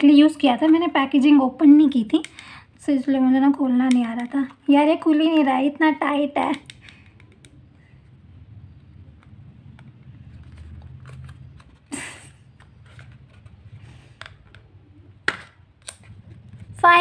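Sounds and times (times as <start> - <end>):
low steady hum: 0.0 - 17.0
fingers tapping and scraping card: 8.9 - 11.9, 12.5 - 16.8.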